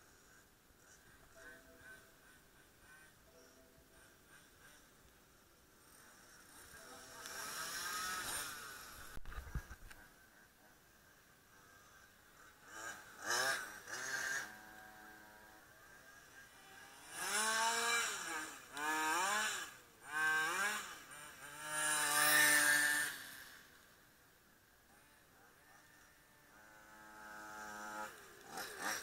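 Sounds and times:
model car motor whining: 0.1s - 5.2s, 5.8s - 10.2s, 11.5s - 24.0s, 24.9s - 29.0s.

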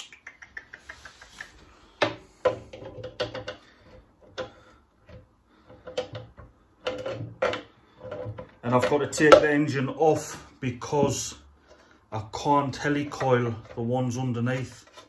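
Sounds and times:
metal clicks and knocks: 2.0s - 9.7s.

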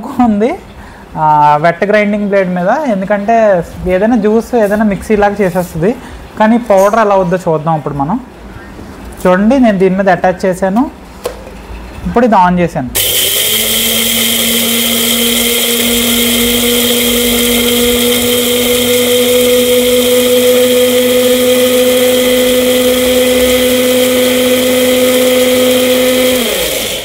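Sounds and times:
blender grinding seeds: 13.0s - 27.0s.

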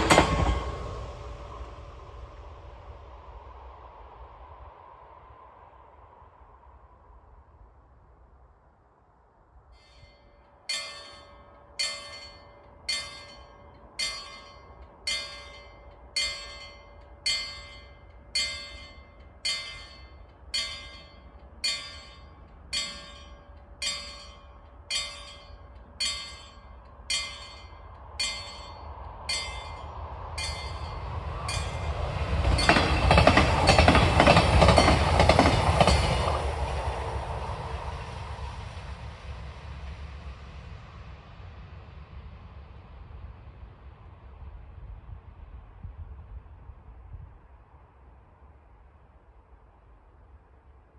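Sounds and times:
diesel railcars passing: 0.0s - 8.8s, 9.4s - 50.9s
level crossing warning bell: 9.8s - 36.5s.

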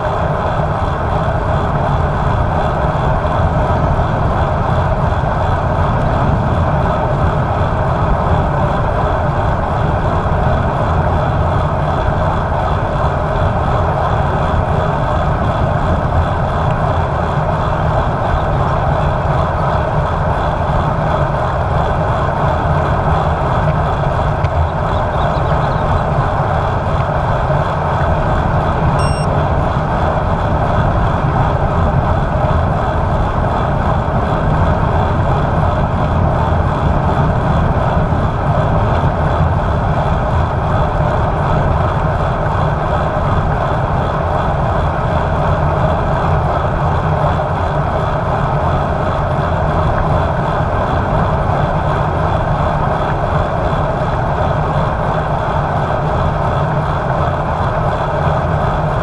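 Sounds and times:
bike tyre road rumble: 0.0s - 59.0s
wind buffeting microphone: 0.0s - 59.0s.

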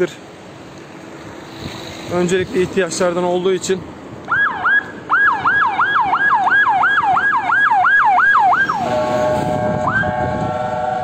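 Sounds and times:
fire engine siren yelping: 4.3s - 11.0s
loud horn blare: 8.6s - 11.0s.

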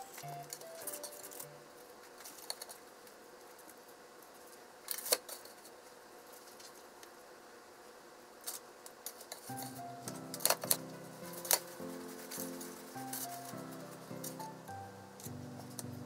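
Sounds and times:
chopsticks clicking and tapping: 9.5s - 13.4s.

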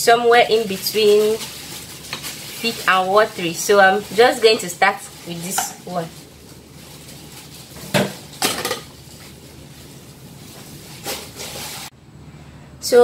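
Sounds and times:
dishes and utensils clattering: 7.8s - 9.0s.

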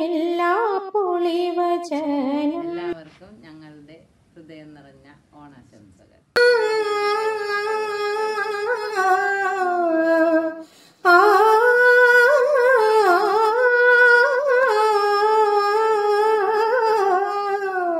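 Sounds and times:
person humming a slow tune: 6.4s - 17.9s.

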